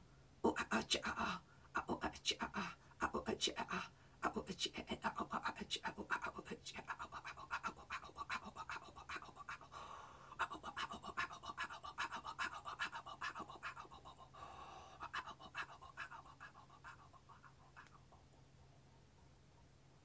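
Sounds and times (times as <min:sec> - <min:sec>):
woman panting: 0:07.2 - 0:18.2.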